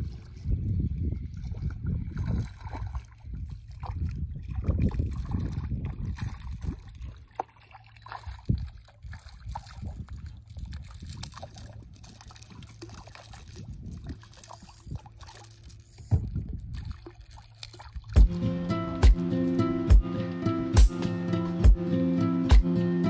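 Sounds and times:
wind on microphone: 0:00.0 - 0:07.3, 0:08.2 - 0:12.2, 0:12.9 - 0:15.2, 0:16.0 - 0:17.2
fish splashing in water: 0:01.4 - 0:18.4.

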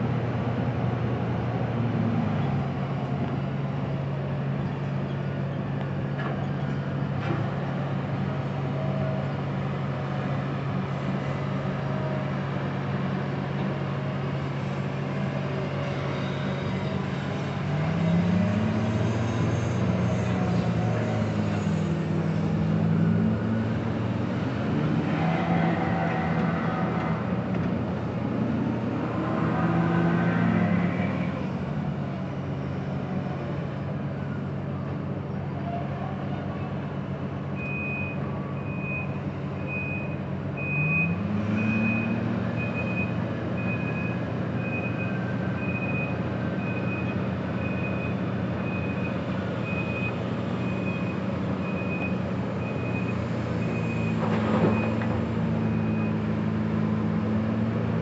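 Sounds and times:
heavy diesel engines running: 0:00.0 - 0:58.0
truck back-up alarm beeping: 0:37.6 - 0:56.3.

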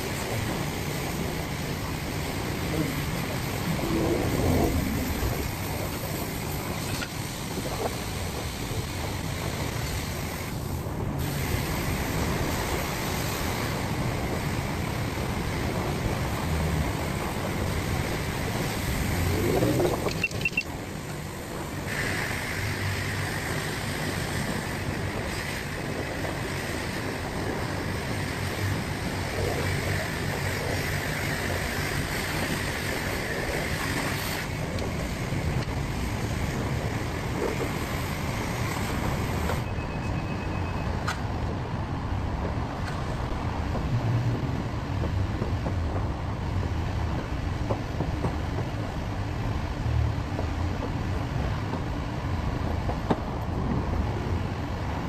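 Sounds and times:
low rumble: 0:02.6 - 0:06.7.

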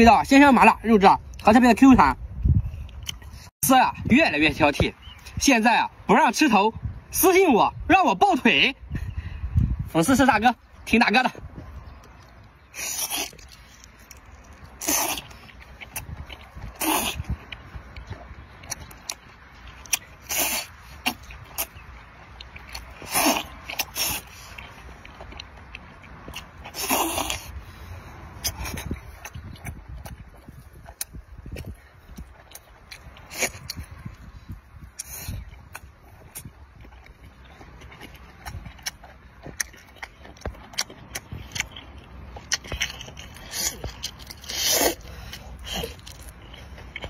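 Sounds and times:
sharp eating clicks: 0:00.1 - 0:03.5, 0:09.6 - 0:47.0
slurps: 0:12.2 - 0:18.1, 0:19.8 - 0:21.8, 0:22.4 - 0:36.6.

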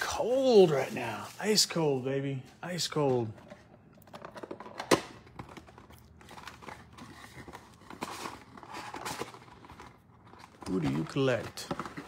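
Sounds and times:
cardboard box rustling and crinkling: 0:05.3 - 0:12.0.

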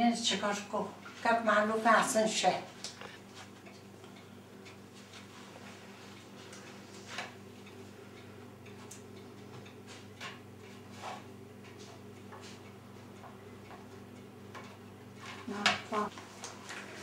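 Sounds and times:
steady low hum: 0:00.0 - 0:16.2
light clicks and paper rustles: 0:16.1 - 0:17.0.

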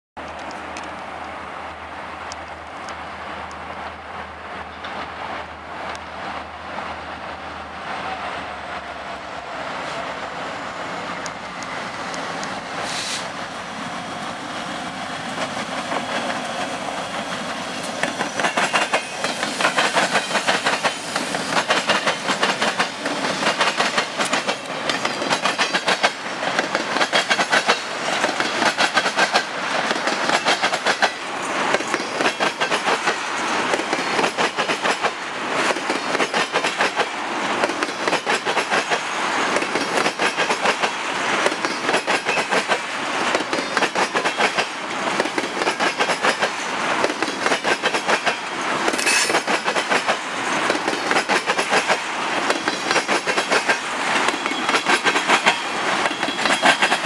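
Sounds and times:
train wheels clickety-clack: 0:14.6 - 0:57.0.

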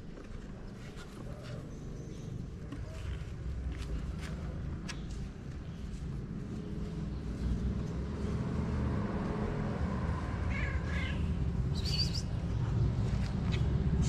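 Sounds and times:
cat meowing: 0:10.5 - 0:11.4.

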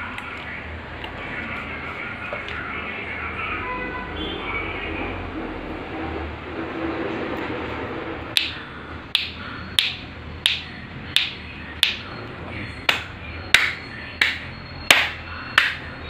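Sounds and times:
sharp hand claps: 0:08.4 - 0:08.6, 0:09.2 - 0:12.1, 0:12.9 - 0:15.9.

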